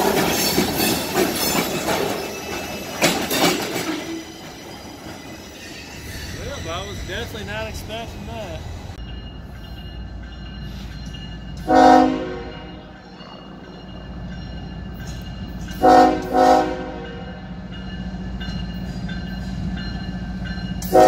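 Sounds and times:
train rumbling: 0.0s - 21.0s
locomotive horn blasts: 11.6s - 13.0s, 15.8s - 17.4s.

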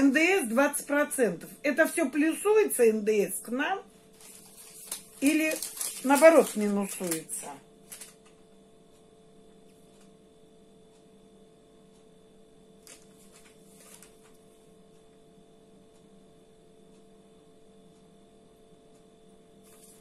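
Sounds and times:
faint electrical hum: 0.0s - 20.0s.

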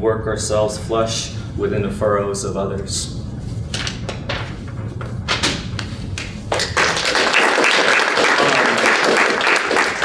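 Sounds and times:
low room hum: 0.0s - 10.0s
audience applause: 6.5s - 10.0s.

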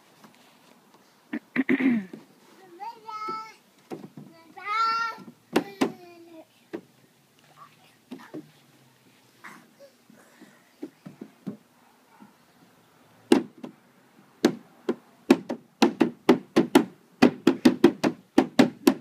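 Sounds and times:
knocking on hollow plastic: 3.3s - 4.3s, 5.2s - 6.0s, 10.8s - 11.6s, 13.3s - 13.8s, 14.4s - 19.0s.

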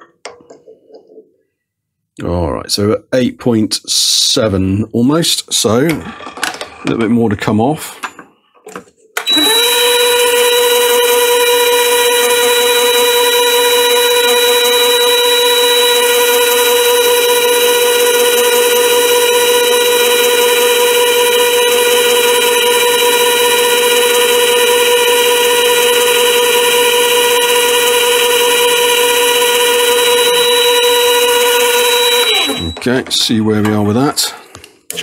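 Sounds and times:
lathe whine: 9.2s - 32.8s.

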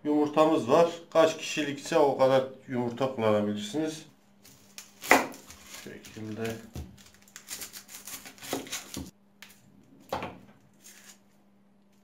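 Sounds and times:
onion skin crackling: 4.4s - 9.6s, 10.7s - 11.4s.

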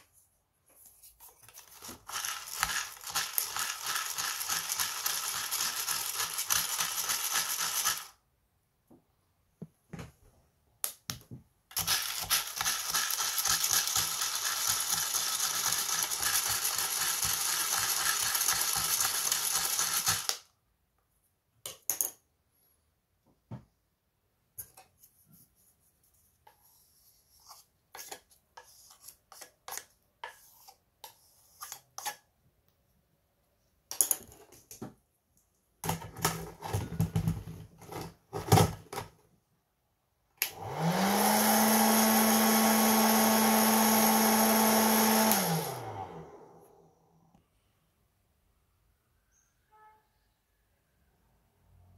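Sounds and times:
beans rattling in mesh sieve: 1.7s - 8.1s, 11.8s - 20.3s
coffee beans rattling in roaster: 11.8s - 20.3s.

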